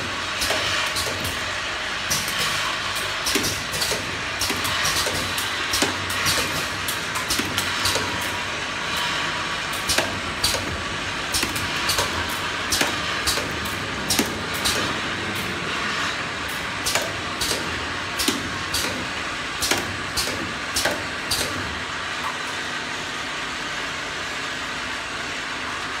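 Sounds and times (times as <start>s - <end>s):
capping machine clicks and clacks: 0.0s - 22.6s
machine hum: 0.0s - 26.0s.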